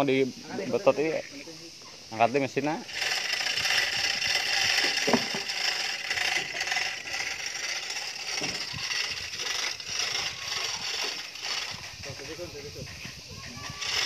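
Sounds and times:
chains rattling: 2.8s - 14.0s
hoist clicking: 2.9s - 14.0s.

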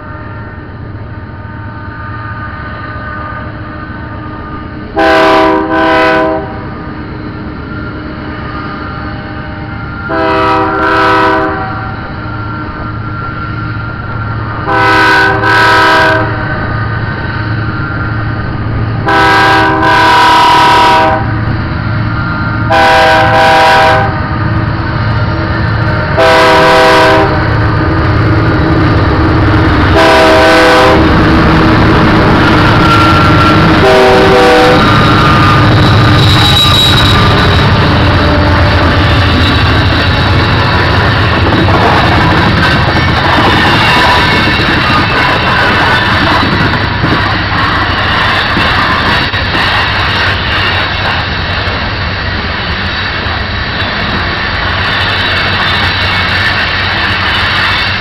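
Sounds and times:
locomotive engine and wheel rumble: 0.0s - 58.0s
locomotive air horn blasts: 5.0s - 6.6s, 10.1s - 11.9s, 14.6s - 16.5s, 19.0s - 21.3s, 22.7s - 24.2s, 26.2s - 27.5s, 29.9s - 31.1s, 32.8s - 35.7s
wind buffeting microphone: 24.0s - 58.0s.

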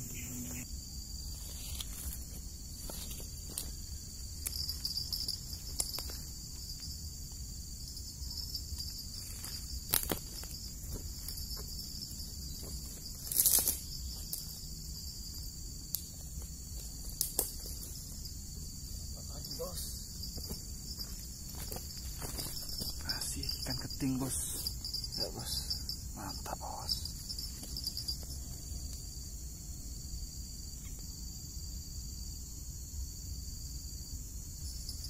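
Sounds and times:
crickets trilling: 0.0s - 35.0s
footsteps on grass and dry fronds: 1.2s - 6.8s, 9.0s - 18.8s, 20.2s - 25.1s.

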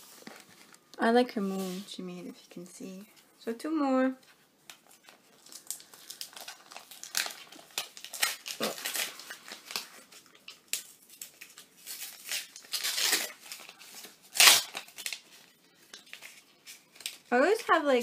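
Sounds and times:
packet crinkling and tearing: 4.7s - 17.8s.

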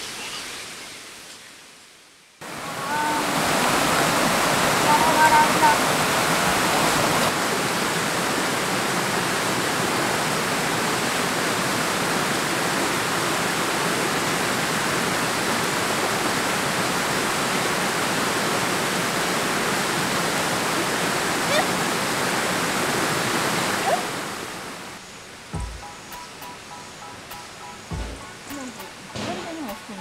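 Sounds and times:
stream rushing over rocks: 2.4s - 25.6s.

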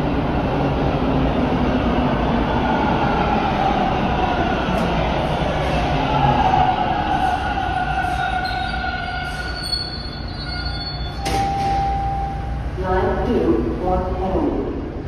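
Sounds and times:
subway train whine falling: 0.0s - 15.0s
wheel squeal: 8.0s - 11.5s.

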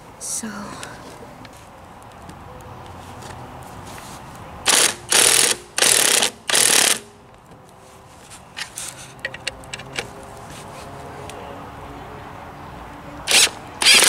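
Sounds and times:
ratchet wrench ratcheting: 4.7s - 7.1s, 13.3s - 14.0s.

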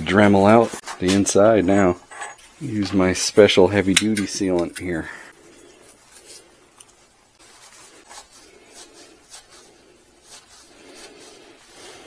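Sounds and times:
hands rubbing pipe fitting: 3.8s - 12.0s.

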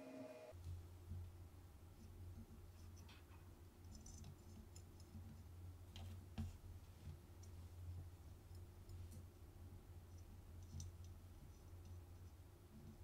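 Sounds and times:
low steady hum: 0.0s - 13.0s
small clicks of metal parts: 2.8s - 6.2s.

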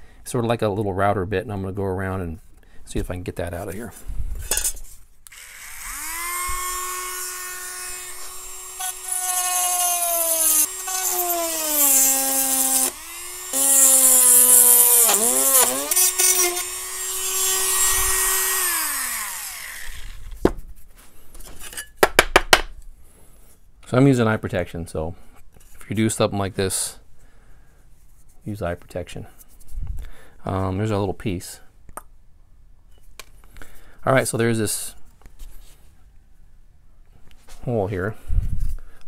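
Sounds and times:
rotary tool grinding metal: 5.3s - 20.4s.

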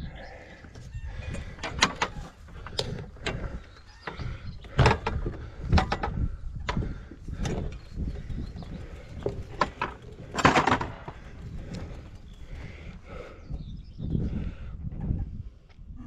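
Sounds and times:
bike knocks and rattles: 1.3s - 13.2s.

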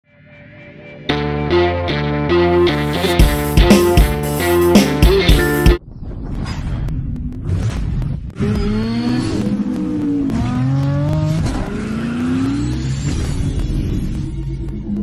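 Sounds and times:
car engine revving and accelerating: 8.4s - 15.0s.

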